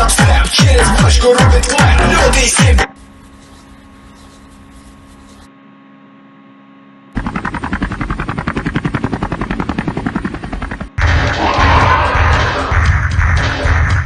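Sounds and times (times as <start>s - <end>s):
low electrical hum: 2.0s - 8.6s
rapid pulsing rattle: 7.2s - 14.0s.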